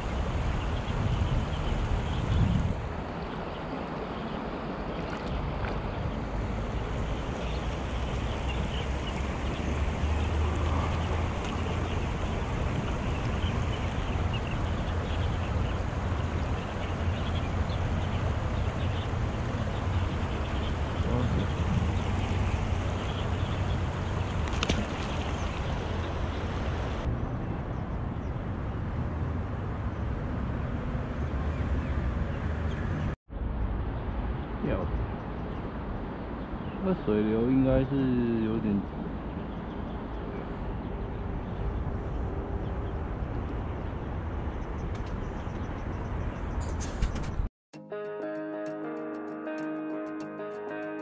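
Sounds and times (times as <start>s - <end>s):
wind buffeting microphone: 0.0s - 30.0s
stream water rushing over stones: 2.8s - 27.1s.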